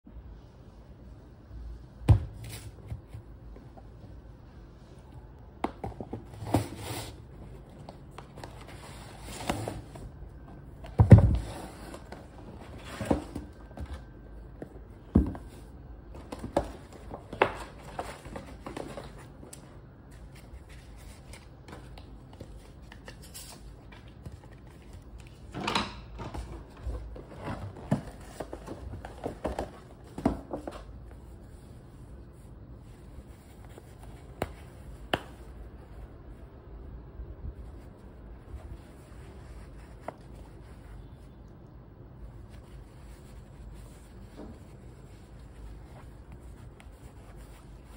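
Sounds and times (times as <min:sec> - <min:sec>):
paper rustling and crinkling: 0:05.9 - 0:25.5, 0:26.3 - 0:36.1.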